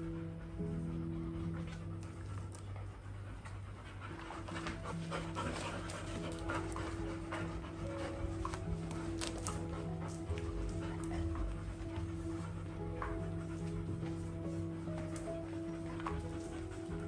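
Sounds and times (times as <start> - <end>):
dog panting: 0.0 - 17.0.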